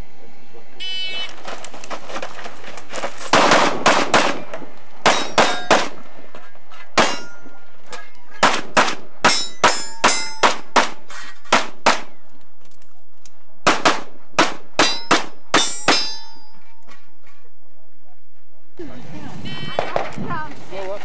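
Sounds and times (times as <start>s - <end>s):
steel targets clanging: 3.3s - 7.6s, 8.4s - 12.2s, 14.4s - 17.1s
handgun shots: 8.4s - 12.2s.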